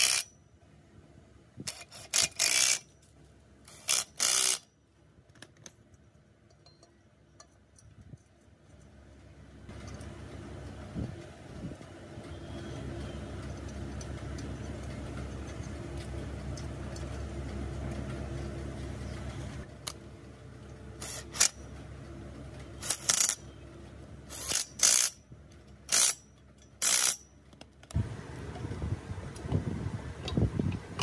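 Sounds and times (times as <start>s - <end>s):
impact wrench bursts: 0.0s - 0.3s, 1.7s - 2.9s, 3.7s - 4.7s, 21.0s - 21.6s, 22.8s - 23.4s, 24.3s - 25.2s, 25.9s - 27.2s
low steady hum: 4.7s - 31.0s.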